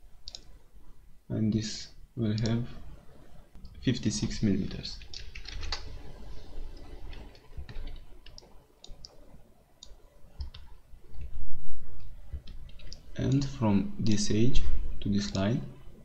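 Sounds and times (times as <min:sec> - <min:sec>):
computer mouse clicks: 0:00.2 - 0:00.5, 0:02.4 - 0:02.6, 0:05.0 - 0:05.9, 0:06.7 - 0:09.2, 0:09.8 - 0:11.3, 0:12.0 - 0:14.2.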